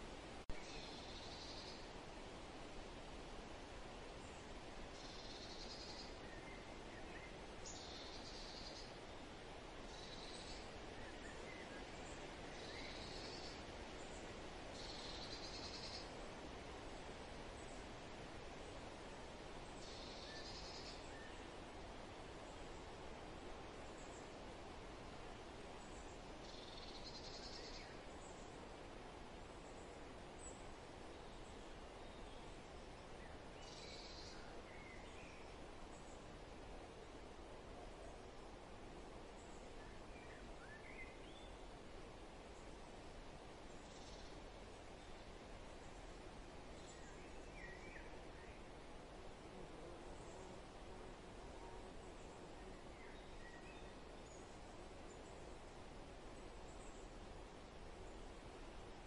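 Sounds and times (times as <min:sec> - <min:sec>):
steady hiss: 0:00.0 - 0:59.0
faint bird chirps: 0:00.5 - 0:01.9, 0:04.2 - 0:09.0, 0:09.9 - 0:16.2, 0:19.6 - 0:21.5, 0:25.8 - 0:28.6, 0:29.5 - 0:36.3, 0:43.7 - 0:46.1, 0:46.7 - 0:48.8, 0:51.7 - 0:55.6.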